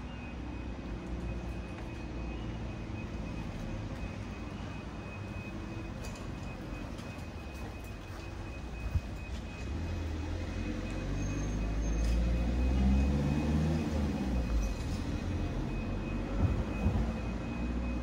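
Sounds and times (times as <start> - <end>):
vehicle engine rumble passing: 7.3 - 18.0.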